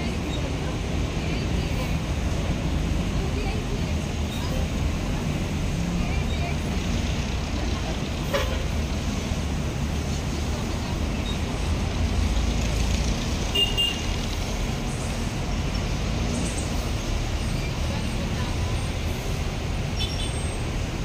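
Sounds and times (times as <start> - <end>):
bus engine rumble: 0.0 - 21.0
street traffic noise: 0.0 - 21.0.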